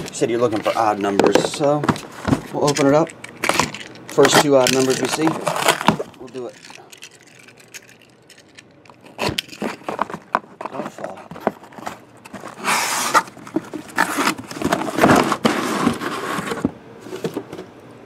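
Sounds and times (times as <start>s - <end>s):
cardboard scraping: 0.0s - 3.1s, 9.1s - 17.7s
plastic wrap rustling: 0.0s - 8.1s.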